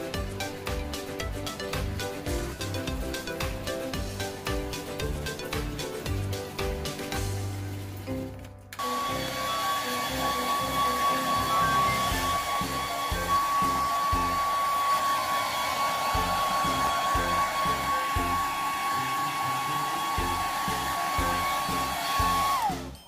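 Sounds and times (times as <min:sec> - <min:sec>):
background music: 0:00.0 - 0:15.0, 0:15.9 - 0:23.0
hair dryer running: 0:08.8 - 0:23.0.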